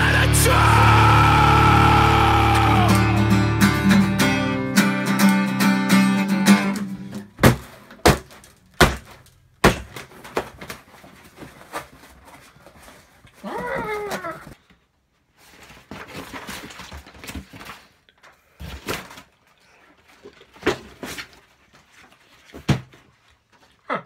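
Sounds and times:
acoustic guitar strumming chords: 0:00.0 - 0:07.3
loud thumps and knocks: 0:07.4 - 0:10.5.

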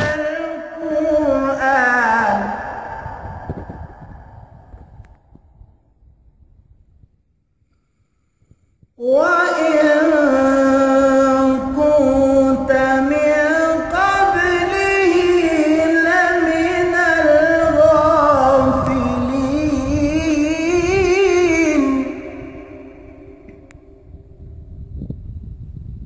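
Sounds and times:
man chanting recitation: 0:00.0 - 0:03.5, 0:09.0 - 0:23.6.

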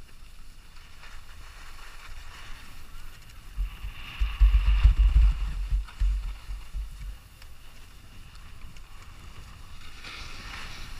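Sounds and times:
skis scraping packed snow: 0:00.0 - 0:10.9
wind buffeting microphone: 0:02.9 - 0:10.9.

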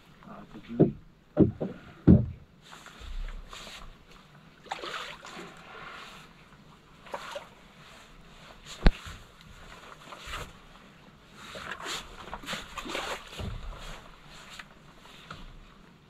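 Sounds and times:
knocks and thumps on a boat: 0:00.4 - 0:04.0, 0:12.2 - 0:15.6.

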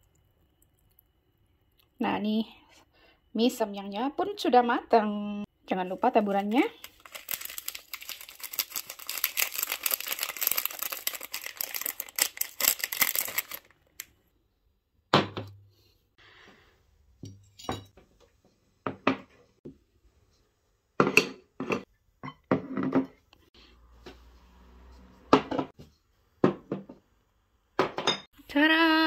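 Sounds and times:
flakes shaken from foil sachet: 0:06.2 - 0:13.7
dishes knocking on wooden table: 0:26.4 - 0:27.0.

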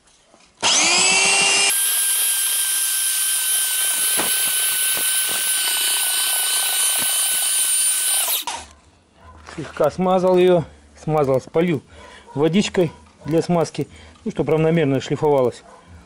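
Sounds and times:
electric belt sander whining: 0:00.6 - 0:08.6.

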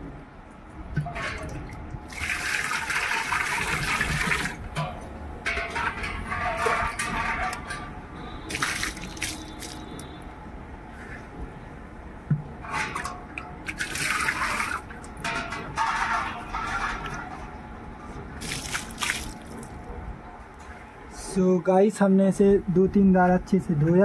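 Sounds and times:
water sloshing in clay pot: 0:01.0 - 0:04.8, 0:05.5 - 0:10.2, 0:12.5 - 0:17.5, 0:18.4 - 0:19.8
water pouring onto concrete: 0:02.1 - 0:04.6, 0:08.5 - 0:10.0, 0:13.7 - 0:14.9, 0:18.4 - 0:19.8.

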